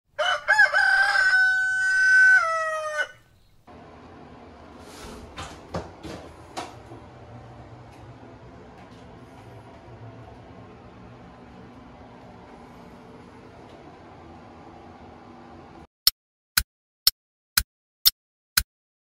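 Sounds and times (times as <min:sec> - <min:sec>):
rooster crowing: 0:00.1 - 0:03.4.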